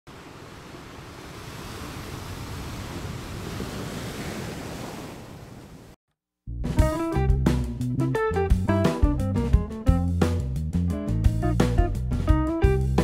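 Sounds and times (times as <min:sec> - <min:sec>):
breaking waves: 0:00.1 - 0:06.0
plucked guitar music: 0:06.7 - 0:10.3, 0:10.9 - 0:13.0.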